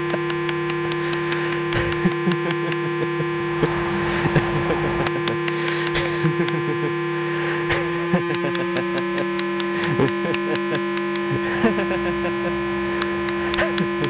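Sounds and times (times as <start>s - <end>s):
sharp clicks: 0.0s - 2.9s, 5.0s - 6.6s, 7.8s - 11.4s, 13.0s - 14.0s
electronic synthesizer drone: 0.0s - 14.0s
warbling pitch glides: 1.6s - 7.1s.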